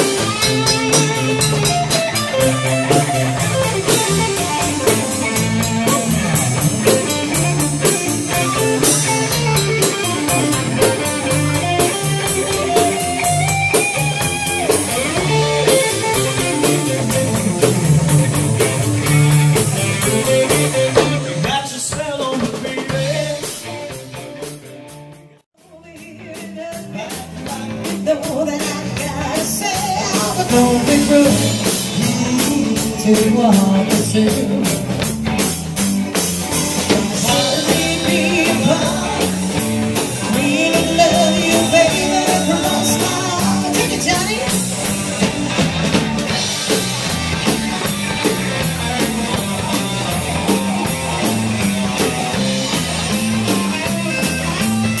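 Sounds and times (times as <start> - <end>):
drum kit beat: 0.0 - 55.0
electric guitar: 0.0 - 55.0
person singing: 21.0 - 24.2, 25.6 - 35.0, 37.1 - 44.6.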